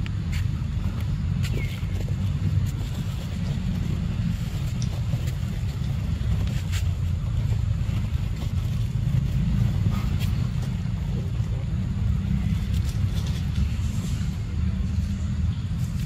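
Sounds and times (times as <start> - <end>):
faint clicks and rustles: 0.0 - 16.0.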